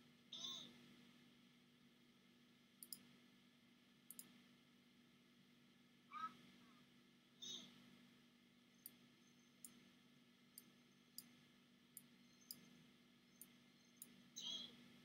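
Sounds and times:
faint sharp clicks: 2.8s - 3.1s, 4.1s - 4.4s, 9.6s - 9.8s, 12.0s - 12.7s, 13.4s - 14.2s.

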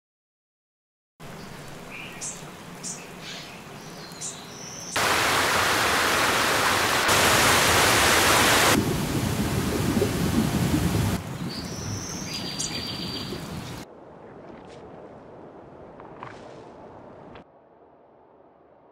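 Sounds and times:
bird chirps: 1.4s - 5.0s, 11.4s - 13.8s
waterfall splashing over rock: 5.0s - 11.4s.

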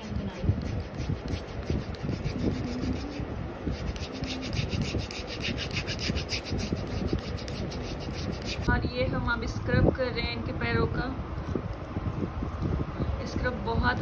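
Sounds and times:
foot file scraping skin: 0.0s - 8.7s.

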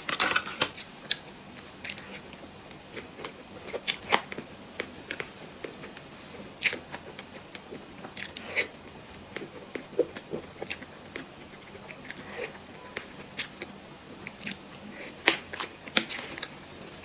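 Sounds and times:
chewing and wet mouth sounds: 0.7s - 17.0s
lip smacks and clicks: 13.0s - 16.5s.

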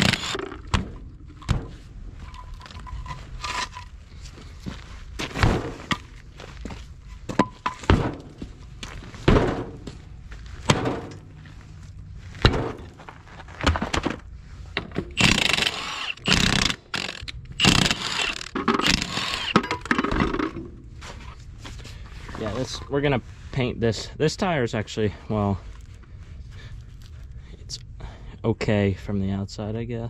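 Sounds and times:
impact wrench running: 0.0s - 0.7s, 15.2s - 20.1s
steel wheel handled on gravel: 1.3s - 14.3s
wooden blocks thudding on gravel: 5.2s - 10.0s, 12.4s - 14.2s.

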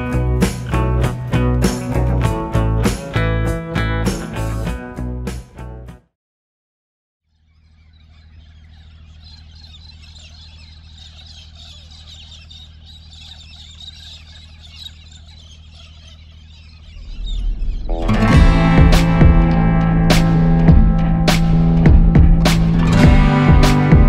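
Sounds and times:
music: 0.0s - 6.1s, 17.6s - 24.0s
birds chirping: 7.2s - 24.0s.

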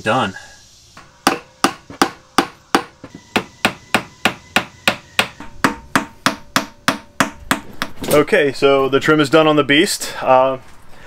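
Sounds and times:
hammer tapping on wood: 1.2s - 8.0s.

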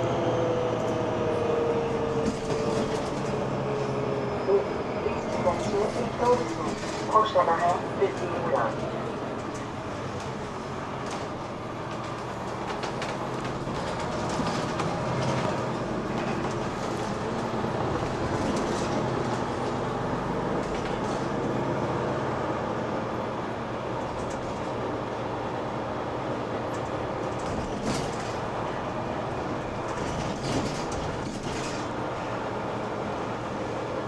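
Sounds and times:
bus engine and road noise: 0.0s - 34.0s
rattles and knocks: 11.9s - 17.2s, 26.7s - 28.5s, 29.9s - 32.0s.

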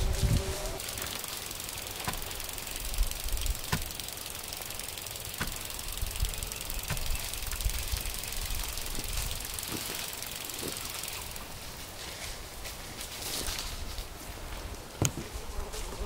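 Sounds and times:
faint clicks: 0.8s - 11.9s.

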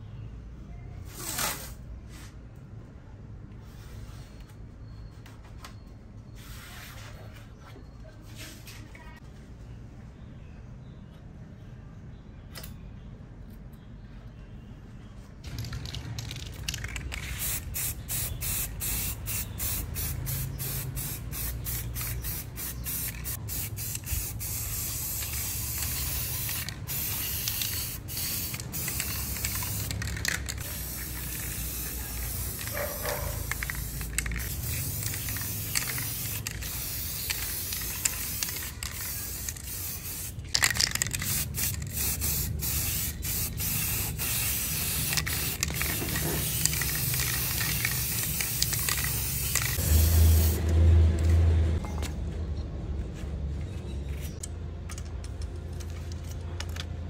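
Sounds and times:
spray paint can hissing: 6.4s - 7.1s, 15.5s - 50.7s.

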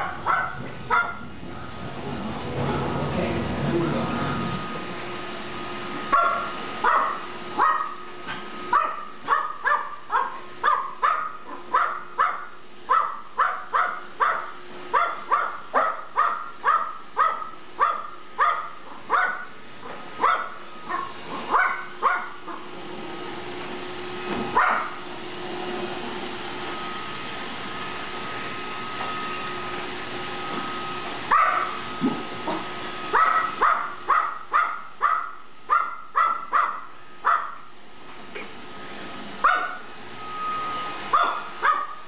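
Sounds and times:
small dog barking sharply: 0.0s - 1.2s, 6.1s - 8.0s, 8.7s - 19.5s, 20.2s - 22.4s, 24.6s - 25.0s, 31.3s - 31.8s, 33.2s - 37.6s, 39.4s - 39.8s, 41.1s - 42.0s.

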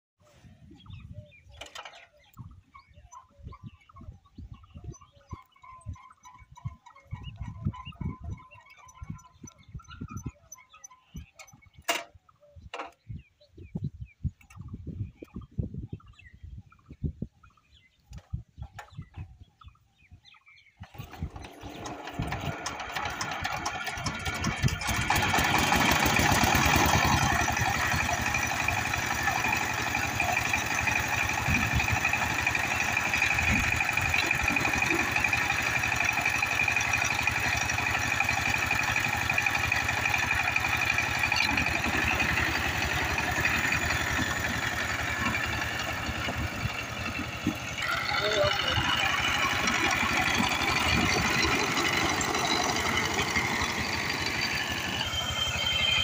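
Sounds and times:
diesel engine starting and running: 20.7s - 56.0s.

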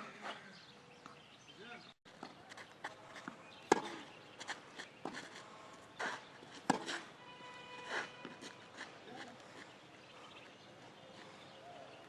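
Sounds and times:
tennis ball struck with racket: 3.2s - 4.1s, 6.6s - 7.1s.

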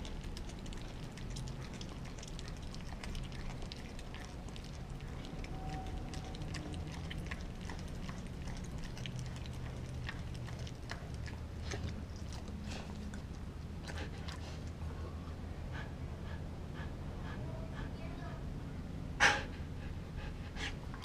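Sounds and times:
dog gnawing frozen bone: 0.0s - 14.8s.

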